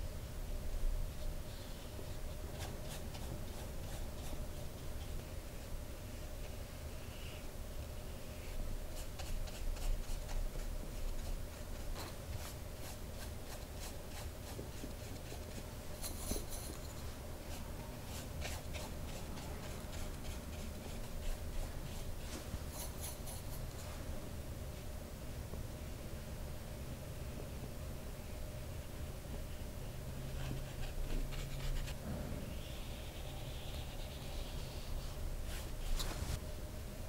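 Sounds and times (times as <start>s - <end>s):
faint steady hum: 0.0s - 37.0s
paintbrush strokes on paper: 8.4s - 24.1s, 30.2s - 36.4s.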